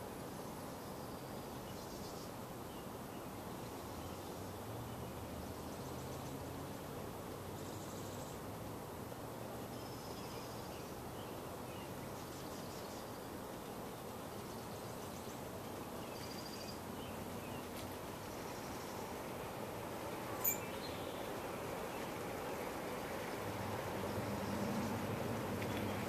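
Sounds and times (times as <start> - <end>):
insects trilling: 0.0 - 26.0
bird call: 20.4 - 21.0.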